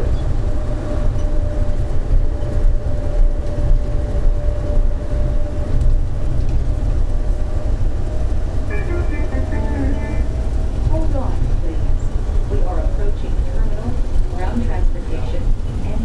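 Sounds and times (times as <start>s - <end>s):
steady whine: 0.0s - 16.0s
train heavy low rumble: 0.0s - 16.0s.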